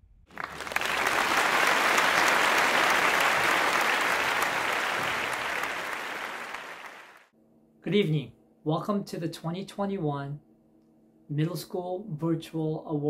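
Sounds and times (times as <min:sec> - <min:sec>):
applause: 0:00.3 - 0:07.3.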